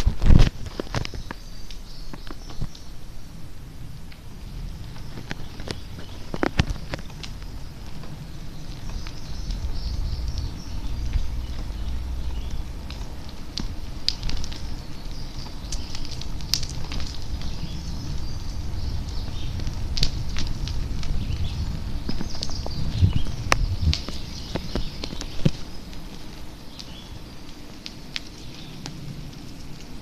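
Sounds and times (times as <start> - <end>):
microphone handling noise: 0.0 - 1.3, 19.3 - 25.6
wind rumbling on microphone: 0.0 - 30.0.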